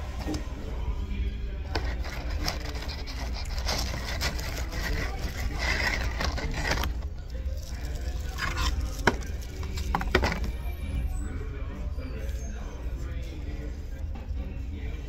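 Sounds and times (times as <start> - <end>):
background voices: 0.0 - 15.0
clicks and rustles of food handling: 1.7 - 10.6.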